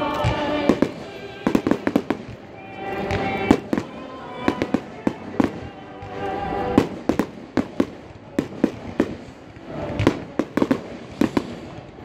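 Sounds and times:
orchestral music: 0.0 - 7.8
fireworks banging: 0.0 - 12.0.

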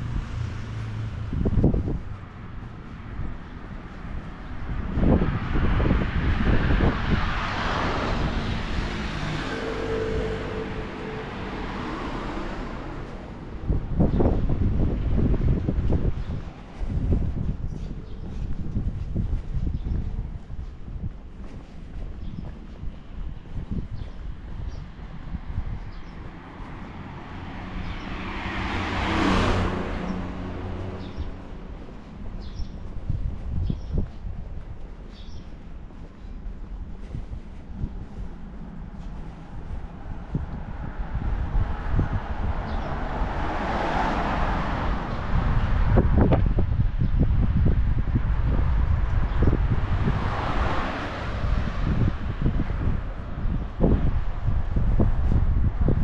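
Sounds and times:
car passing by: 0.0 - 3.2, 4.6 - 17.5, 24.6 - 33.8, 37.8 - 46.8, 47.5 - 56.0
car driving past: 26.3 - 32.4.

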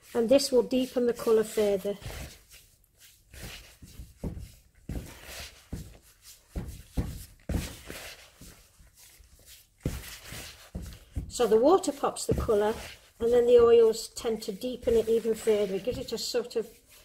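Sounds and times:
hands rubbing crumbly mixture: 0.0 - 17.0
dull thumps: 3.4 - 8.8, 9.8 - 16.4.

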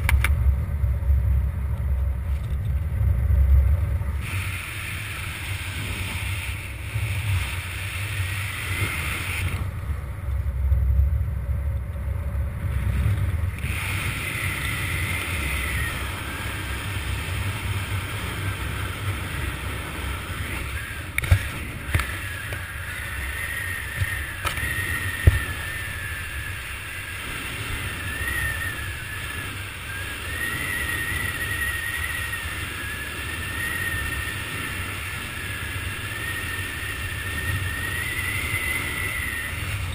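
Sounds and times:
wind rumbling over microphone: 0.0 - 39.9
thin wavering whistle: 13.9 - 17.4, 22.0 - 39.9.

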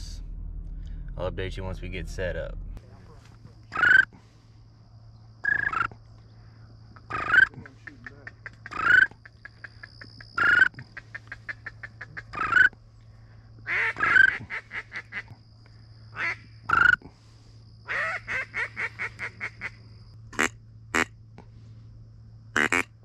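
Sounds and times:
faint low hum: 0.0 - 23.0
waterfowl calling: 3.6 - 4.4, 7.0 - 12.8, 13.7 - 15.3, 16.2 - 17.0, 17.9 - 19.8, 22.6 - 22.9.

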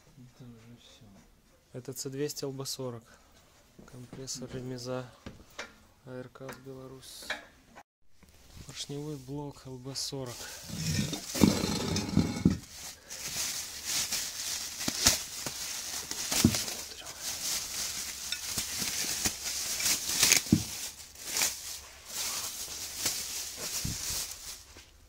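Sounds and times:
plastic bag crinkling: 10.4 - 25.0.

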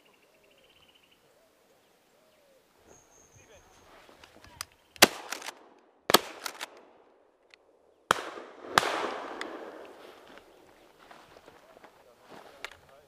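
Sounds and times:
shotgun shots echoing: 5.0 - 7.2, 8.1 - 10.3.

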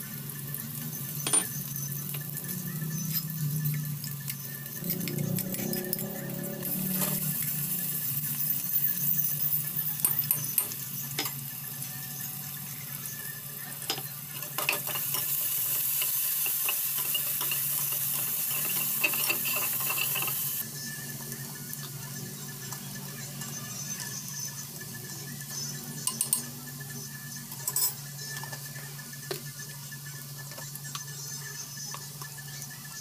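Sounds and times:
onions sizzling in oil: 0.0 - 26.0.

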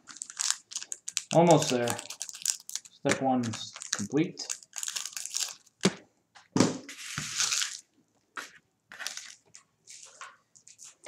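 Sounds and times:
foil wrappers crinkling: 0.0 - 5.8, 7.3 - 7.8.

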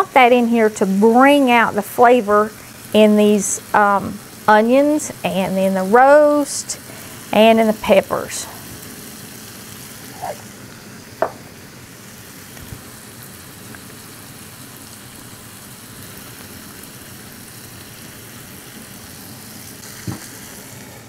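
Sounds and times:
meat sizzling in a frying pan: 0.1 - 21.0
sharp knock: 11.2 - 11.4.

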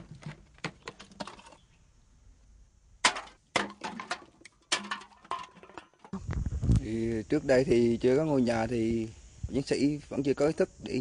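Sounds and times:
bottles and cans clattering: 0.0 - 1.6, 3.0 - 6.2.

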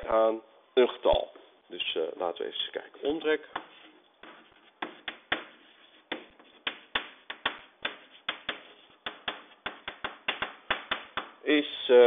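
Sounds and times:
chalk tapping on blackboard: 3.5 - 11.4.

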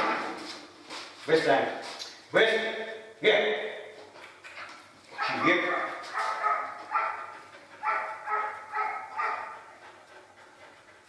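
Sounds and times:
puppy barking: 5.2 - 9.8.

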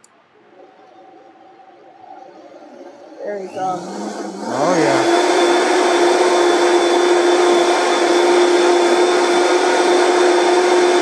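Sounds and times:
blender running: 2.4 - 11.0.

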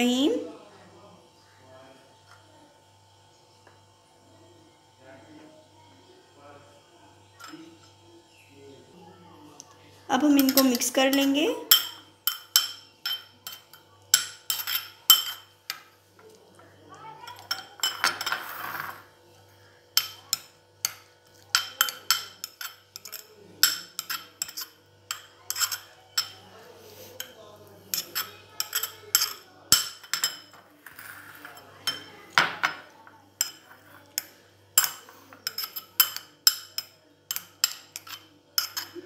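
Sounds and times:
spoon scraping glass bowl: 10.3 - 15.5, 17.3 - 19.1, 21.4 - 32.2, 34.8 - 39.0.

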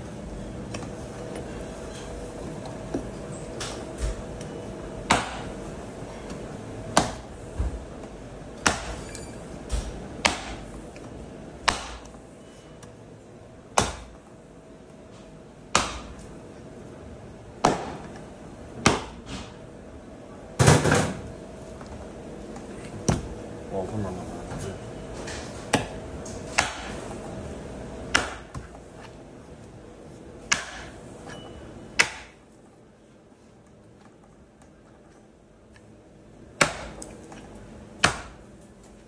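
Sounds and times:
cleaver chopping on wooden block: 5.1 - 5.5, 7.0 - 7.2, 8.6 - 9.0, 10.2 - 10.7, 11.7 - 12.1, 13.8 - 14.2, 15.8 - 16.1, 25.7 - 27.0, 28.1 - 28.6, 30.5 - 31.0, 32.0 - 32.4, 36.6 - 37.0, 38.0 - 38.4.

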